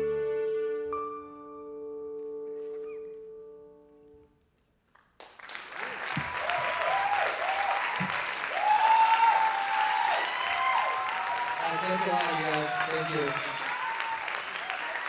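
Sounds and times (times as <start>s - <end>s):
audience applause: 5.0s - 15.0s
cheers and whoops: 6.2s - 15.0s.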